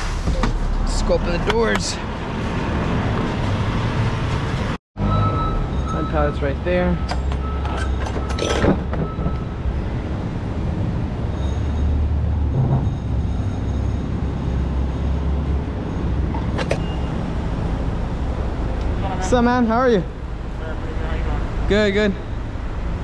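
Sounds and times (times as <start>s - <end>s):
trailer doors clanking: 6.9s - 10.0s, 15.7s - 17.2s.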